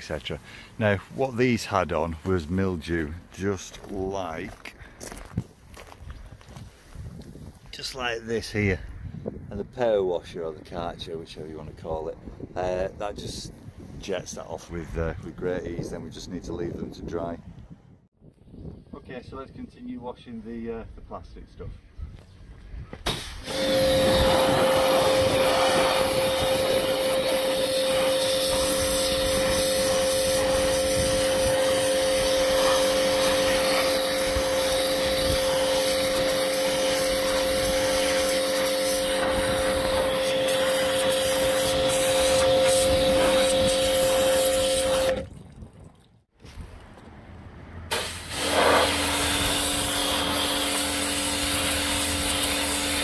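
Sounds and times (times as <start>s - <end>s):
water jet hissing: 23.1s - 45.2s, 47.9s - 53.0s
pressure washer motor whine: 23.4s - 45.2s, 47.9s - 53.0s.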